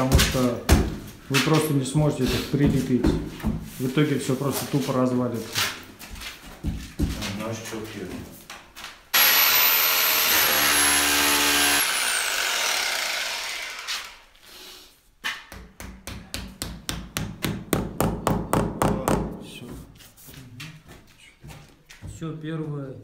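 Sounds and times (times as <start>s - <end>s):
electric drill boring into wall: 9.2s - 14.4s
fast even knocks of dowel hammering: 15.3s - 19.4s.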